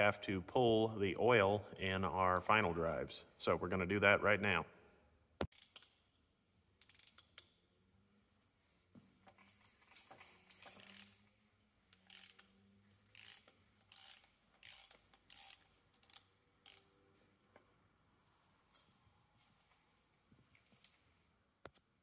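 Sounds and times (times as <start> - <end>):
socket ratchet rasps: 5.5 - 6.0, 6.8 - 7.6, 9.4 - 11.4, 12.0 - 16.9.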